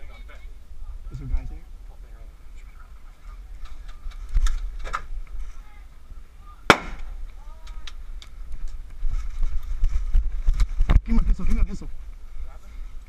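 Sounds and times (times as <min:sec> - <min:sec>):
airsoft grenade bang: 0:06.7 - 0:07.2
scattered clicks and pops: 0:06.7 - 0:11.3.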